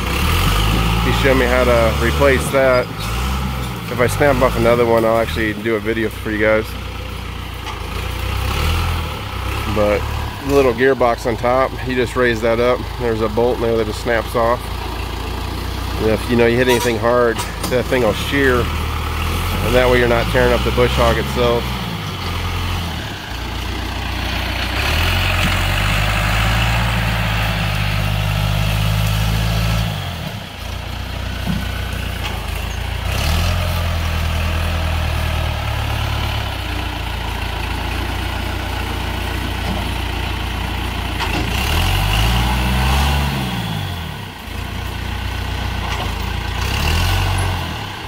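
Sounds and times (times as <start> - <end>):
tractor engine under load: 0.0 - 48.0.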